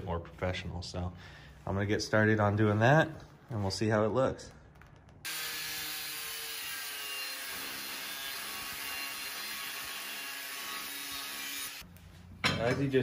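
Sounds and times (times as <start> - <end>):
angle grinder cutting steel: 5.3 - 11.8.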